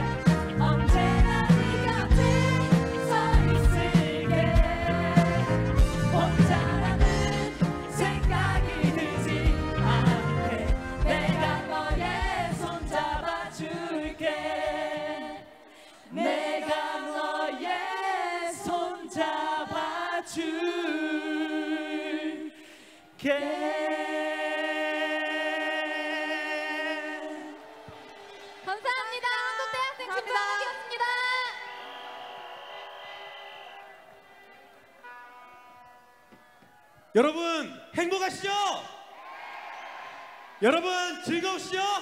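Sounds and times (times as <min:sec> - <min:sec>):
backing track with bass and drums: 0:00.0 - 0:13.4
voices singing: 0:00.0 - 0:28.3.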